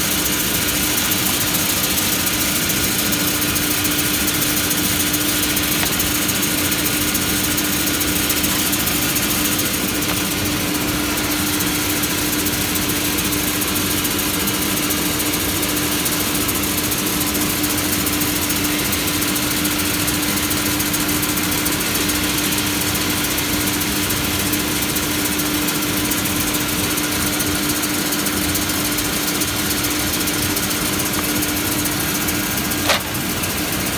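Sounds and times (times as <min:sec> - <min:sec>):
saw machine humming: 0:00.0 - 0:14.4, 0:25.9 - 0:33.9.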